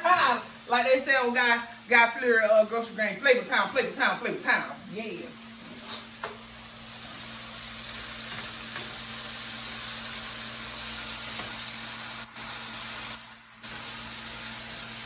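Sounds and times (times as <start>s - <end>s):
potatoes sizzling in a skillet: 5.0s - 15.0s.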